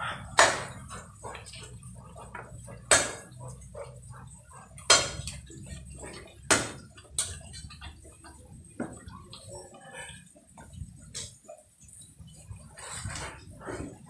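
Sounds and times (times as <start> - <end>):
cleaver chopping branches on wood: 0.4 - 0.8, 2.8 - 3.3, 4.8 - 5.3, 6.4 - 6.9.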